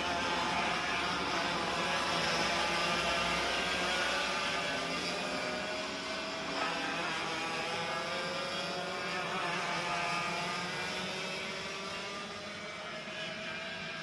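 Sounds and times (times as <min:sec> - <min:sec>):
kart engines buzzing at high revs: 0:00.0 - 0:14.0.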